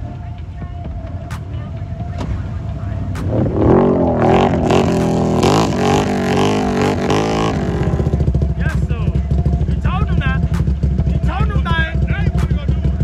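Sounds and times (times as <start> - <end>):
atv engine revving: 1.3 - 13.0.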